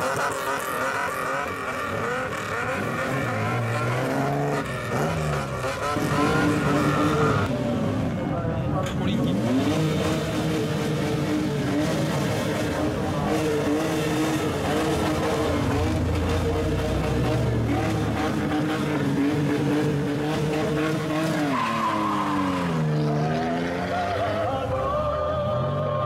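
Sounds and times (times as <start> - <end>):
car exhaust revving: 0.0 - 7.6, 9.1 - 24.4.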